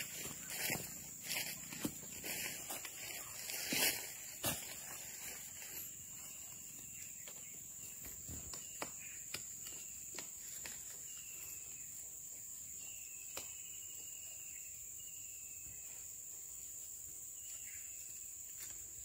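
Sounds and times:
knocks and scuffs on tree trunk: 0.0 - 11.2
high-pitched insect drone: 0.0 - 18.2.

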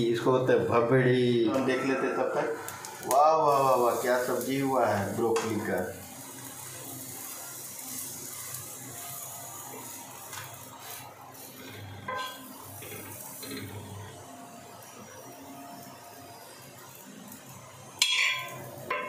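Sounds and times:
oil sizzling in a pan: 2.5 - 19.0
ringing metallic clink: 18.0 - 19.0.

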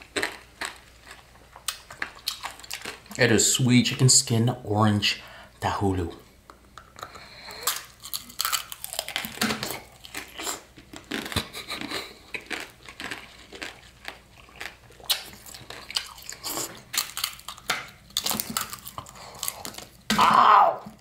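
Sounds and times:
candy shell crunching: 7.6 - 20.0.

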